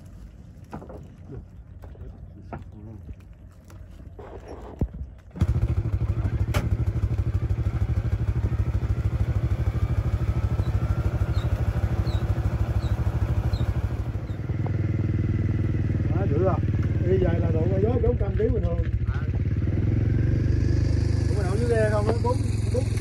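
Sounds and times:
boat engine putter: 0.0s - 19.5s, 21.3s - 23.0s
faint knocks and clatter: 0.6s - 3.2s.

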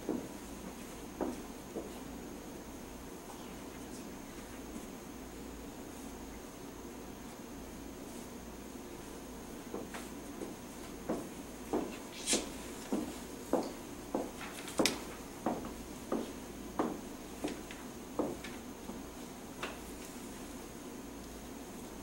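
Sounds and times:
footsteps on hard floor: 0.0s - 2.0s, 9.7s - 19.0s
faint steady hiss: 0.0s - 22.0s.

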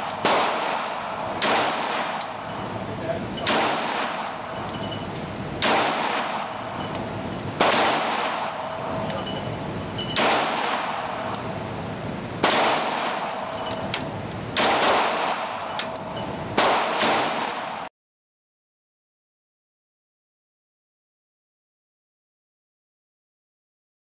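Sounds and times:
pistol shots ringing off concrete: 0.0s - 2.6s, 3.3s - 5.0s, 5.6s - 6.9s, 7.6s - 9.4s, 10.1s - 11.7s, 12.4s - 17.9s.

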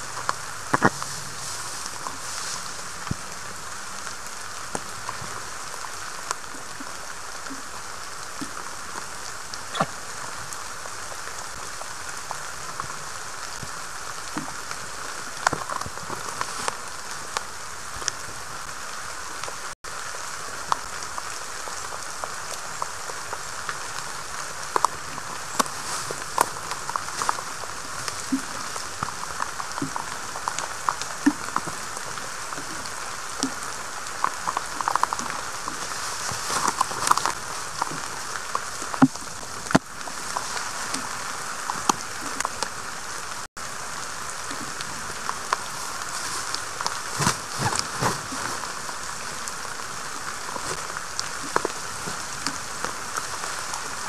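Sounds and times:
water drips ticking: 0.0s - 18.2s, 20.7s - 43.5s
rain hissing: 0.0s - 54.0s.

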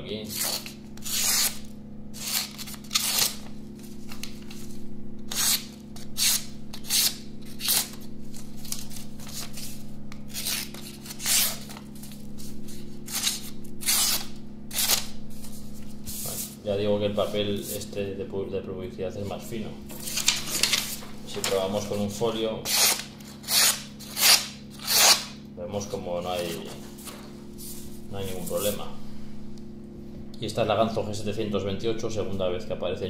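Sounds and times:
knife slicing paper: 0.3s - 4.7s, 5.3s - 15.5s, 22.7s - 25.3s.

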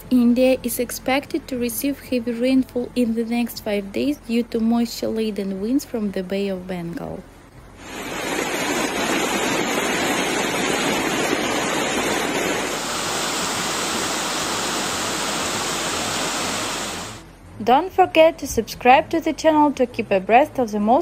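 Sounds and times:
floodwater rushing: 7.8s - 17.2s
water pouring over a wall: 7.8s - 17.2s.

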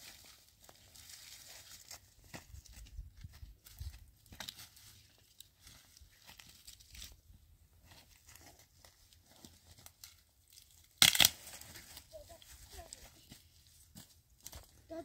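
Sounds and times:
sticks crackling and snapping: 4.2s - 7.2s, 9.7s - 12.1s
wood cracking: 10.8s - 11.4s.

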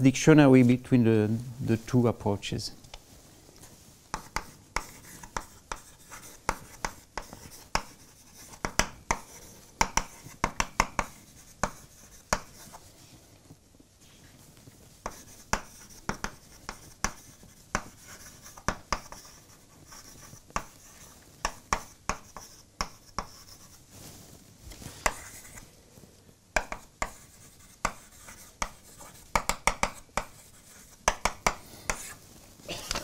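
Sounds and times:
chalk scratching: 3.6s - 13.1s, 15.0s - 24.0s, 24.9s - 25.7s, 26.6s - 32.2s
chalk tapping on blackboard: 4.1s - 12.9s, 15.0s - 23.8s, 25.0s - 25.6s, 26.6s - 32.2s.

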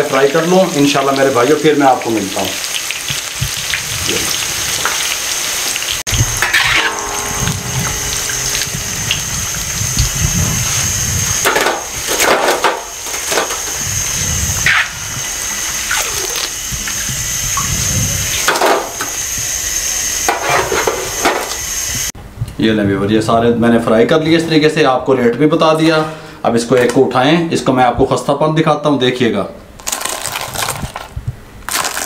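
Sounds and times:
oil sizzling while deep-frying: 0.0s - 22.1s, 31.7s - 32.0s.

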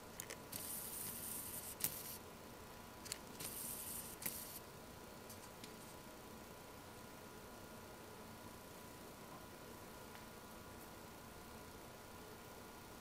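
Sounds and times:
faint hum of thin tones: 0.0s - 13.0s
high hiss: 0.5s - 2.2s, 3.4s - 4.6s.

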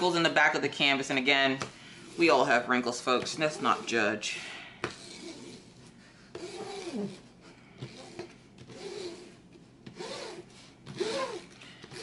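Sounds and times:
paper rubbing squeaks on plastic film: 6.4s - 7.2s, 7.8s - 12.0s.

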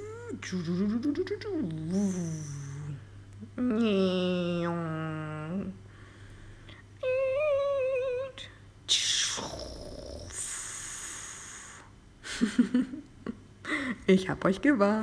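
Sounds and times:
woman making silly vocal noises: 0.0s - 5.8s, 7.0s - 10.5s.

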